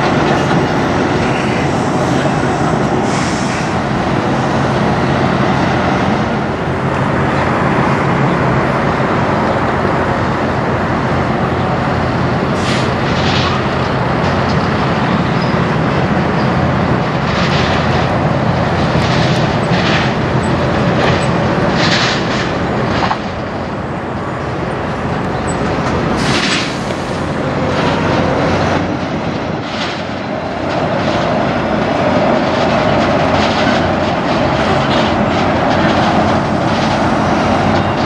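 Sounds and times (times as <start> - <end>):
diesel truck engines driving past: 0.0 - 38.0.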